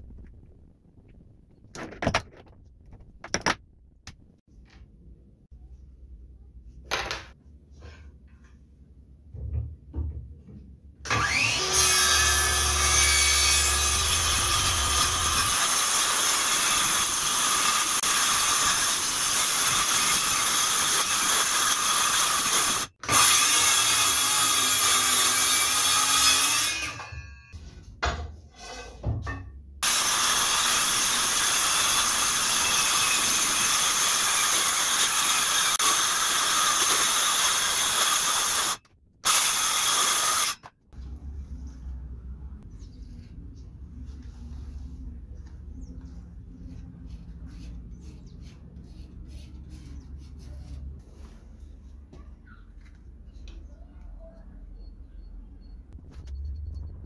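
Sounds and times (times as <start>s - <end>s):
circular saw cutting chipboard: 11.1s - 27.2s, 29.8s - 40.7s.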